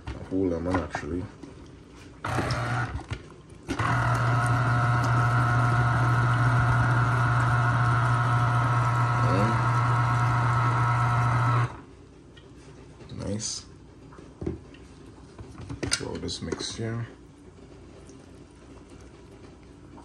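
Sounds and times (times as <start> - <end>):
electric juicer motor humming: 2.2 - 3.0, 3.7 - 11.8.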